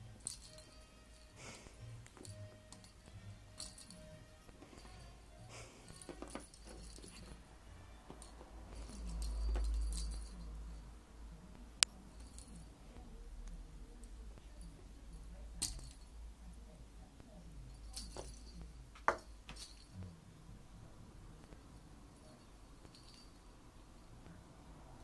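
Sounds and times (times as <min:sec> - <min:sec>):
metallic jingling of cat toy: 0:00.0 - 0:10.9, 0:14.4 - 0:16.2, 0:17.6 - 0:20.0, 0:21.6 - 0:24.2.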